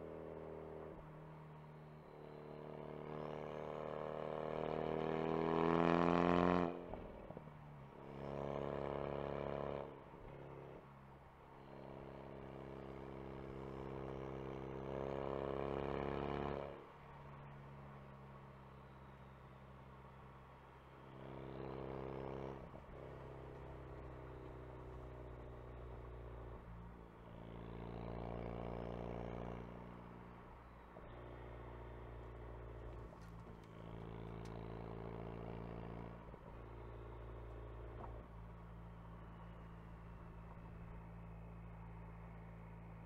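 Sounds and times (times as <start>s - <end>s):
road noise hum: 0.0s - 43.0s
car engine accelerating: 11.7s - 43.0s.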